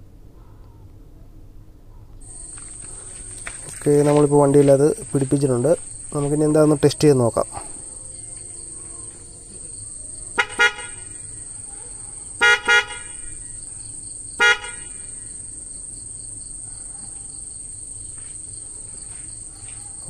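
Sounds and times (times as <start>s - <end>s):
electric car horns tooting: 10.3s - 11.6s, 12.3s - 13.6s, 14.4s - 15.4s.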